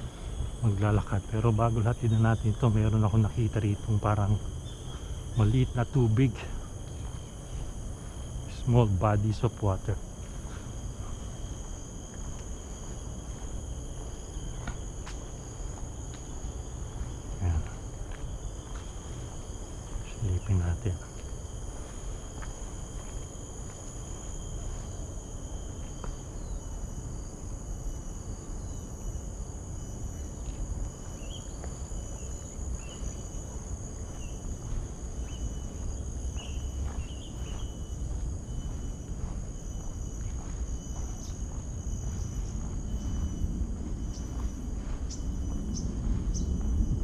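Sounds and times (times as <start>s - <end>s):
insects buzzing: 0.0s - 47.0s
low rumble: 42.1s - 47.0s.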